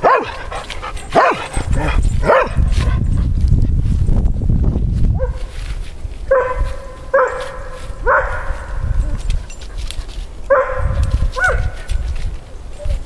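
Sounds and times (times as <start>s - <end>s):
dog barking: 0.0s - 0.5s, 1.1s - 1.5s, 2.2s - 2.6s, 5.2s - 5.5s, 6.3s - 8.8s, 10.5s - 11.9s.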